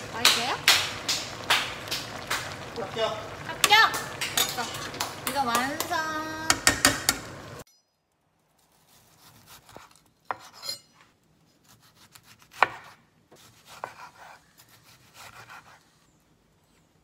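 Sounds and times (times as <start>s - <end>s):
knife slicing tomato: 8.6s - 10.7s, 11.6s - 16.0s.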